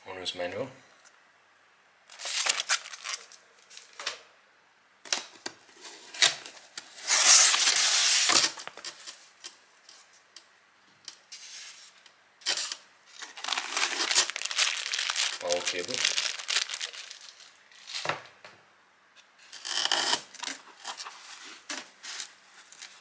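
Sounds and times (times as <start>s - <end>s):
plastic packaging crinkling: 2.1s - 4.0s, 12.4s - 18.2s, 19.5s - 23.0s.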